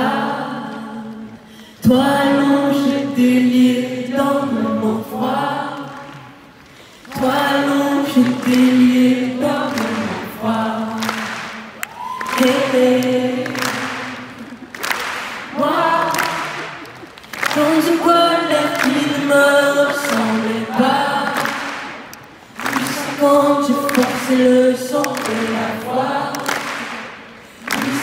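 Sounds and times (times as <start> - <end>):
woman singing unaccompanied: 0.0 - 6.0, 12.0 - 13.6, 15.5 - 16.7, 17.5 - 21.6.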